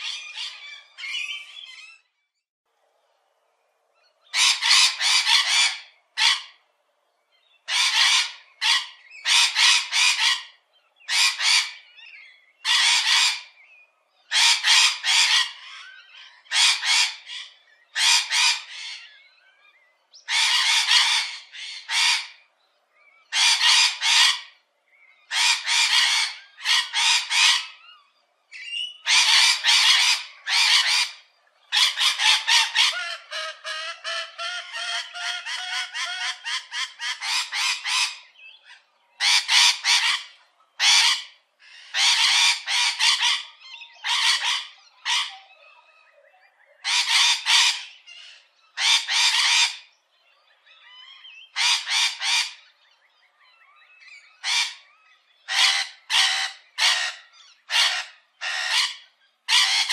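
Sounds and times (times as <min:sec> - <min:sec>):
parrot screeching: 0:00.0 - 0:02.0, 0:04.3 - 0:06.6, 0:07.7 - 0:11.8, 0:12.6 - 0:13.5, 0:14.3 - 0:19.1, 0:20.3 - 0:22.4, 0:23.3 - 0:24.6, 0:25.3 - 0:27.8, 0:28.9 - 0:38.2, 0:39.2 - 0:45.5, 0:46.8 - 0:49.9, 0:50.8 - 0:52.6, 0:54.0 - 0:59.9.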